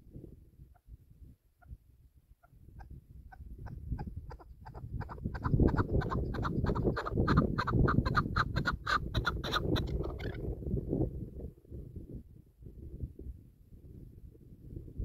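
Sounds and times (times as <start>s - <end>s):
wind on microphone: 0.0s - 15.0s
partridge clucking calls: 2.8s - 10.4s.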